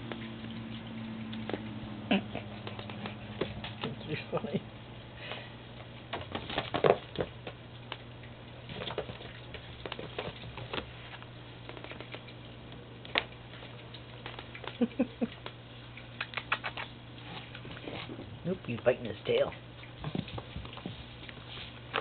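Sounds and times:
kitten paws tapping and scuffling: 0.0 - 4.6, 5.3 - 22.0
steady low hum: 0.0 - 22.0.

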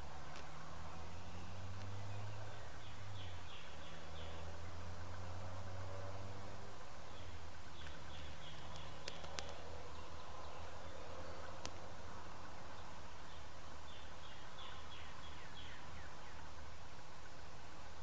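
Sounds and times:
sharp clicks: 7.8 - 9.6.

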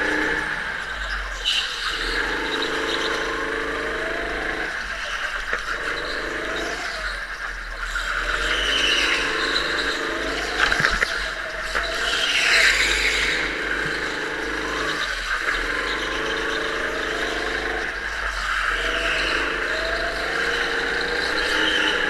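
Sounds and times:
go-kart engine revving: 0.0 - 22.0.

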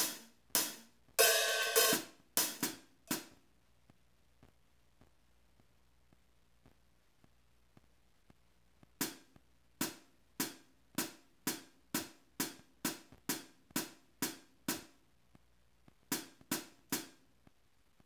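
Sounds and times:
electronic hi-hat hits: 0.0 - 3.4.

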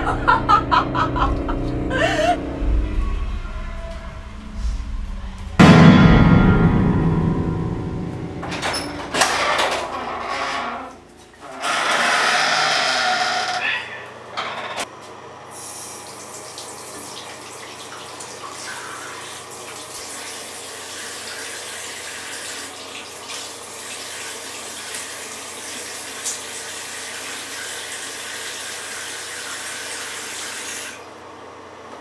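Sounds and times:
tap water running into basin: 15.8 - 31.0.

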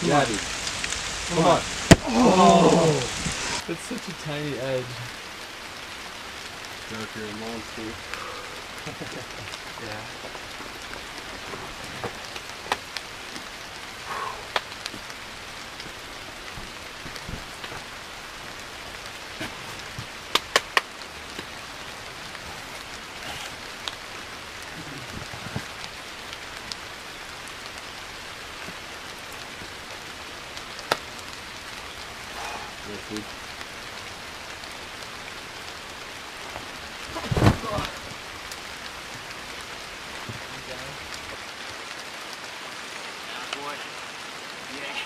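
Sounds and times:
steady rain hiss: 0.0 - 45.0.

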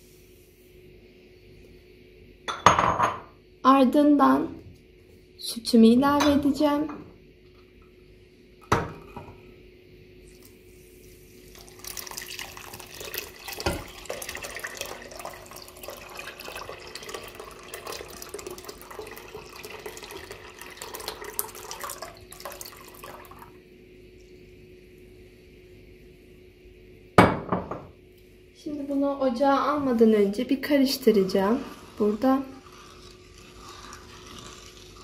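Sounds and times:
milk pouring into a pot: 11.4 - 23.6, 31.0 - 35.0.

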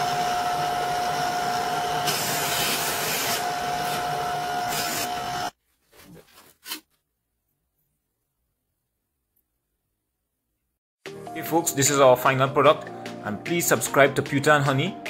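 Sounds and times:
polishing motor whine: 0.0 - 5.5.

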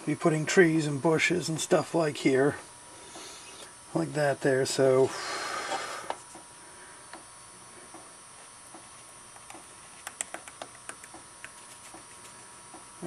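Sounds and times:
faint steady hum: 0.0 - 13.0
paintbrush tapping and ticking: 9.5 - 12.8.

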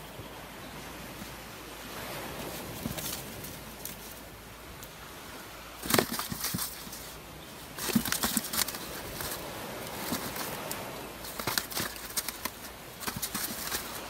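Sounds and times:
steady background hiss: 0.0 - 14.0
fish flapping and rustling: 2.1 - 5.0, 5.6 - 14.0.

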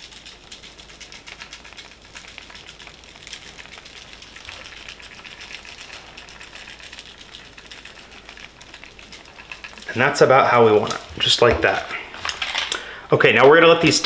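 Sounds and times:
rub granules ticking on foil pan: 0.0 - 14.0.

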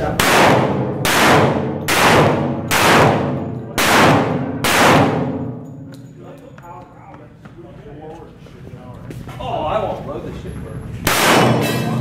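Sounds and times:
echoing pistol shots: 0.1 - 5.6, 11.1 - 11.8.

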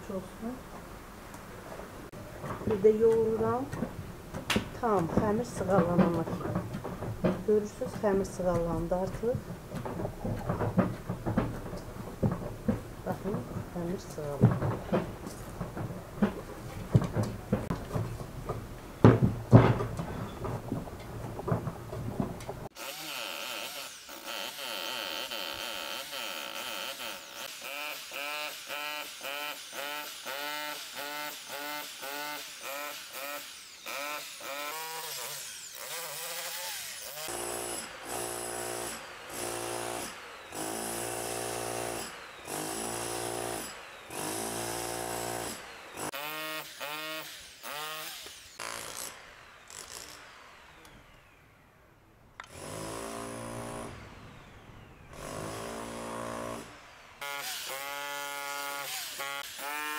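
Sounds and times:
hammer drill boring into stone: 22.7 - 51.4, 55.1 - 59.9.

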